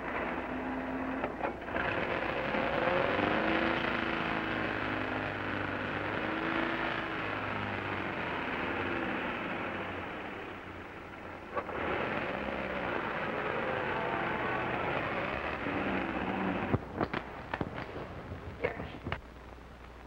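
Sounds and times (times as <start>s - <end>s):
film soundtrack hiss: 0.0s - 20.0s
old car engine running: 0.0s - 20.0s
engine knocks: 10.7s - 18.4s.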